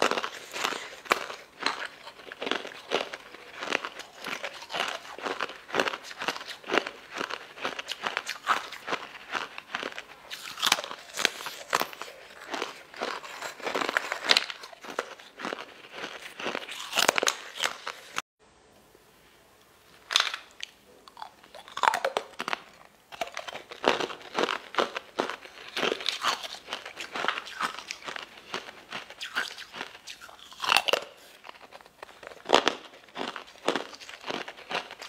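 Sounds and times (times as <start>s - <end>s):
crunching and chewing: 0.0s - 18.2s, 20.1s - 35.0s.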